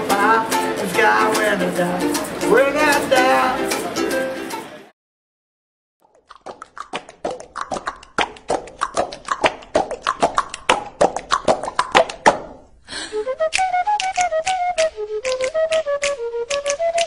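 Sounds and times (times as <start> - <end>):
beatboxing clicks and pops: 6.0 - 12.6, 13.4 - 17.0.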